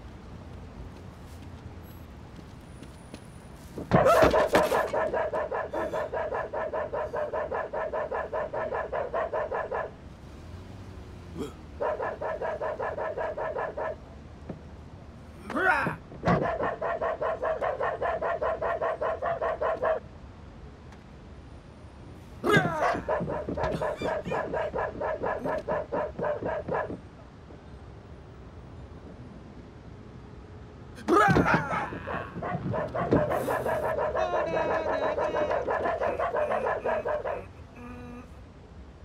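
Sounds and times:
dog yapping: 3.9s - 9.9s, 11.8s - 14.0s, 16.3s - 20.0s, 22.5s - 27.0s, 31.2s - 37.5s
dog sliding cries: 22.5s - 26.9s, 31.3s - 37.5s.

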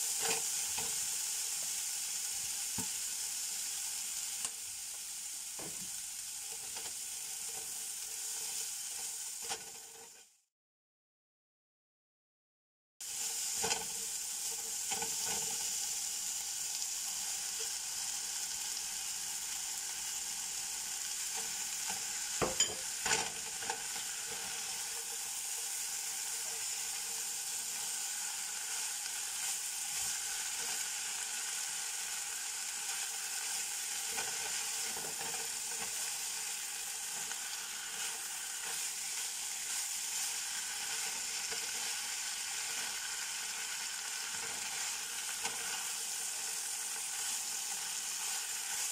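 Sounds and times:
meat and vegetables sizzling: 0.0s - 10.5s, 13.0s - 48.9s
spatula scraping pan: 32.9s - 42.0s.

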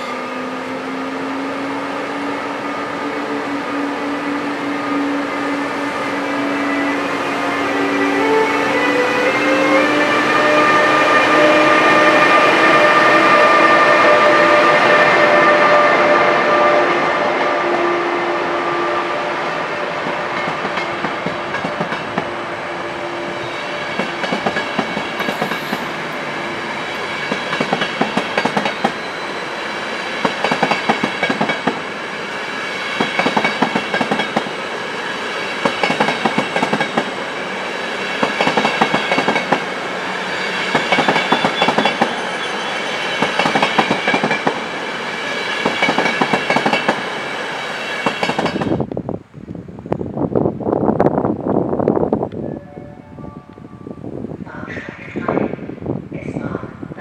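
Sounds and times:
train rolling rumble: 19.6s - 47.4s.

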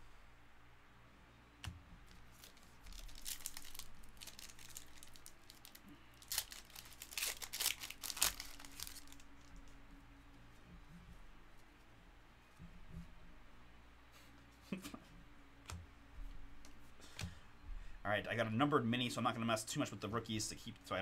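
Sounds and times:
cards shuffling: 1.6s - 9.8s
foil wrapper crinkling: 2.0s - 9.8s.

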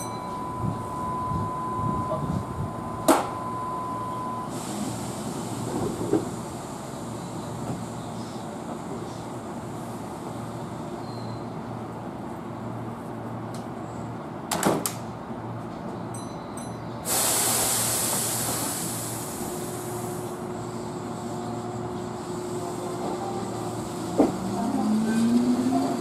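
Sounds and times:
compressed air hiss: 17.0s - 20.3s.

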